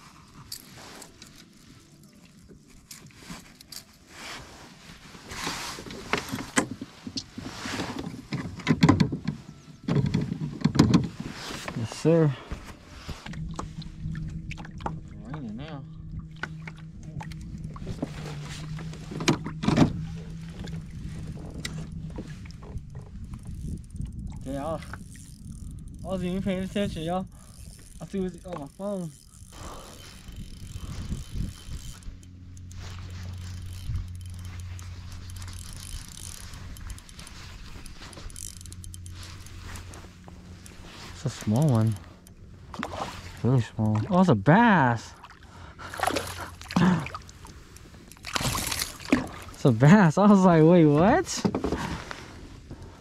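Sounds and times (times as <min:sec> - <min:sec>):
low steady rumble: 0:00.0 - 0:53.0
steady low hum: 0:00.0 - 0:53.0
fishing reel ticking: 0:20.3 - 0:42.4.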